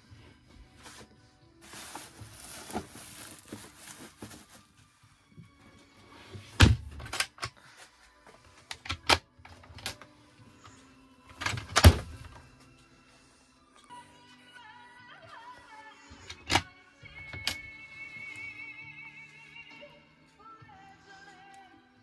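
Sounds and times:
bubble wrap crinkling: 1.6 - 4.9.

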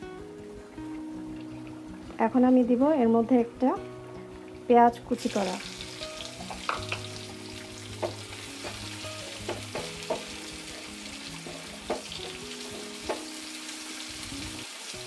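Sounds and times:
onion sizzling in hot oil: 0.3 - 15.0
spatula knocking against pan: 6.4 - 7.1, 7.9 - 13.3.

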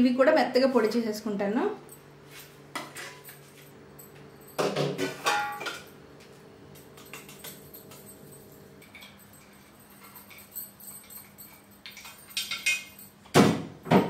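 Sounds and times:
peppercorns clinking in steel jar: 7.0 - 13.3.

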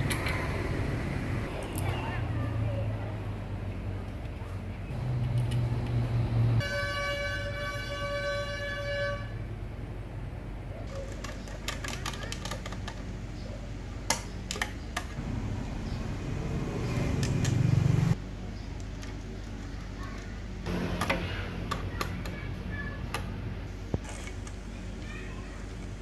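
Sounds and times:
steady low hum: 13.1 - 26.0
low rumble: 15.2 - 18.2.

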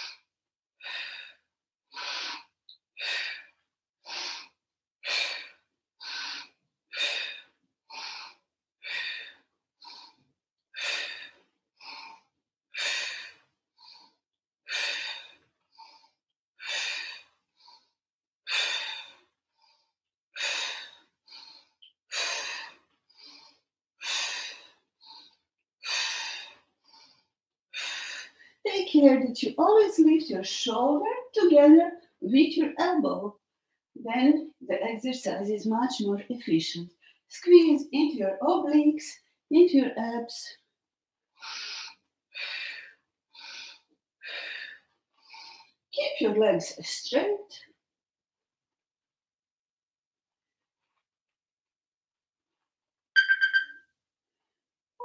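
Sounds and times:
woman breathing hard: 0.0 - 28.6, 41.4 - 45.8.

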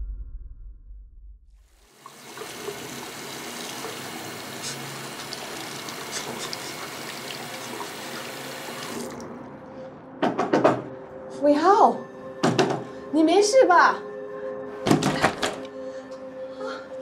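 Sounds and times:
tap running into basin: 2.0 - 9.3.

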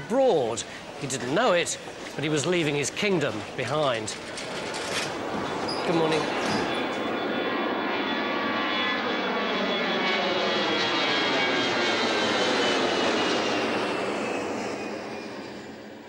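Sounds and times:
jet airliner passing overhead: 0.0 - 16.0.

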